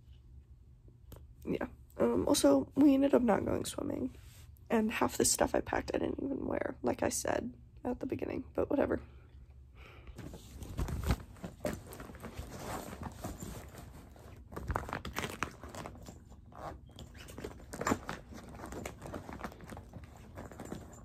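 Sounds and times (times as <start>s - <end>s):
rustling of items packed in bag: 10.2s - 21.0s.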